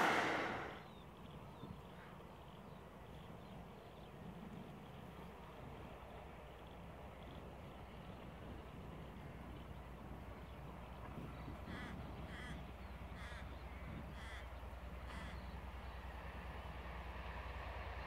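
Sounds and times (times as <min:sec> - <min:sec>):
distant diesel locomotive rumble: 0:00.0 - 0:18.0
crow cawing: 0:11.7 - 0:12.6, 0:13.2 - 0:15.5.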